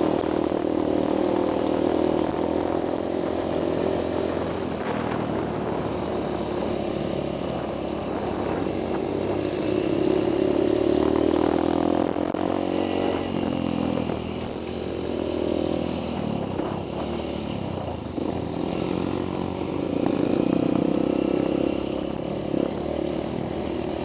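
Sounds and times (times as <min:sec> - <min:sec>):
motorbike engine revving: 0:00.0 - 0:24.0.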